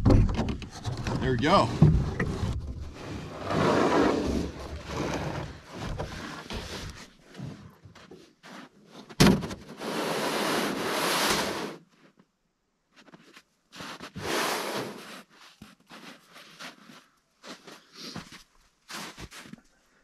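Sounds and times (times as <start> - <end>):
plastic lid scraping: 0.6 - 7.0.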